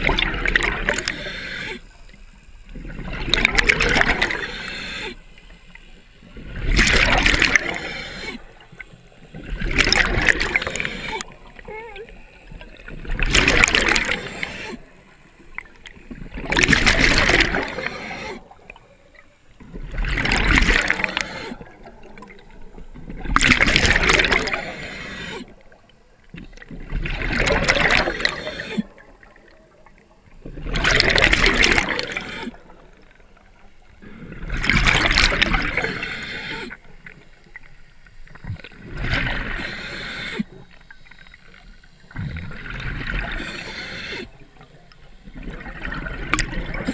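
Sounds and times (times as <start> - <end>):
exhaled bubbles underwater: 0.0 - 46.9
diver inhaling: 0.9 - 2.0, 4.2 - 5.3, 7.4 - 8.6, 10.4 - 11.4, 13.8 - 15.0, 17.4 - 18.5, 20.8 - 21.7, 24.2 - 25.6, 27.9 - 29.0, 31.5 - 32.7, 34.0 - 36.9, 39.4 - 40.6, 43.1 - 44.5.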